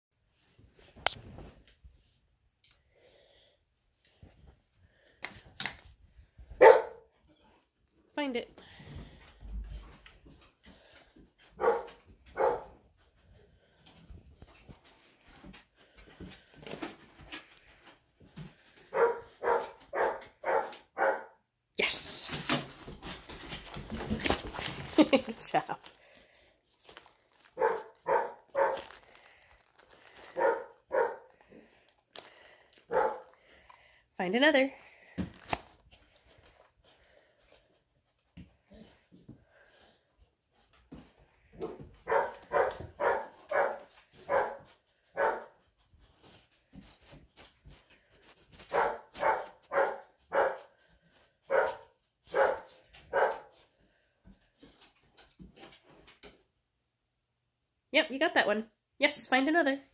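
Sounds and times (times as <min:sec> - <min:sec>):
dog barking: 0:06.6 - 0:07.1, 0:11.6 - 0:12.8, 0:18.9 - 0:21.4, 0:27.6 - 0:28.9, 0:30.3 - 0:31.3, 0:32.9 - 0:33.4, 0:42.0 - 0:45.6, 0:48.7 - 0:50.7, 0:51.5 - 0:53.5.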